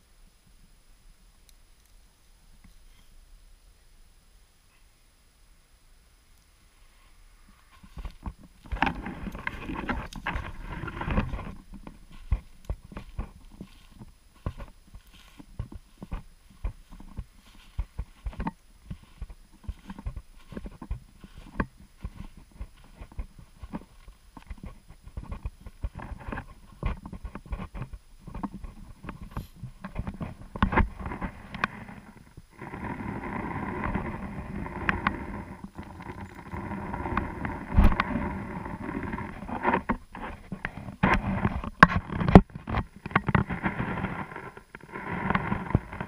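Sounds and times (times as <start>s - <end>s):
steady background noise: 0.0s - 46.0s
footsteps crunching in snow: 7.5s - 34.8s.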